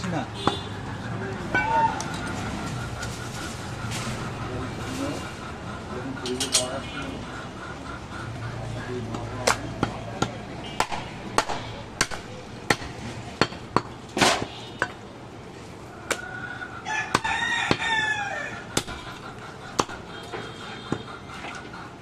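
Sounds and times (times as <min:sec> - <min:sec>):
cleaver chopping on wooden block: 0:09.4 - 0:15.0, 0:19.8 - 0:20.0
rooster crowing: 0:16.2 - 0:18.7.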